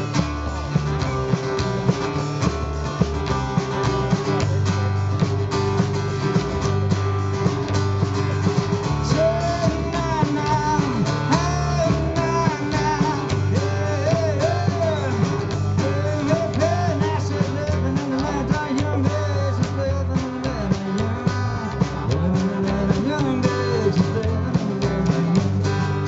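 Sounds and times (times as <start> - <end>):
live band playing: 0.0 - 26.0
sliding bending guitar melody: 0.0 - 26.0.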